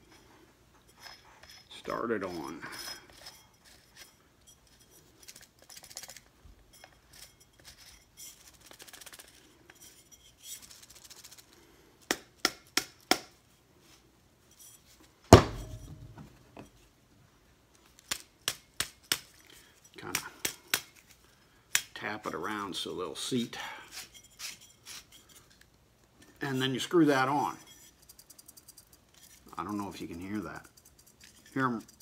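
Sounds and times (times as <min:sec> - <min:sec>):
faint metal scraping: 0:00.0 - 0:11.9, 0:13.4 - 0:17.0, 0:22.1 - 0:32.0
loud knock: 0:15.3 - 0:15.9.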